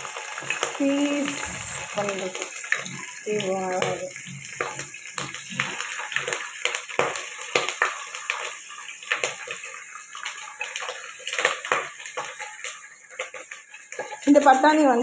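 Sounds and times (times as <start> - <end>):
water spraying into a pot: 0.0 - 15.0.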